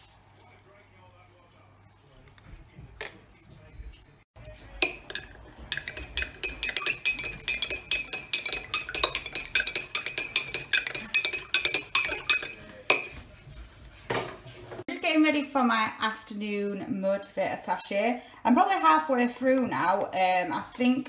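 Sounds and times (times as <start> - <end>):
teaspoon clinking in glass: 4.4 - 13.2.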